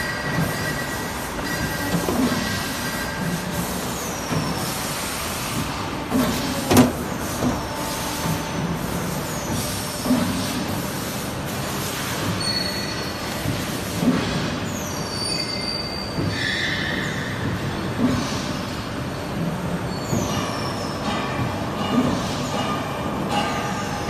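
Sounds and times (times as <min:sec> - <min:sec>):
steady machine noise: 0:00.0 - 0:11.7.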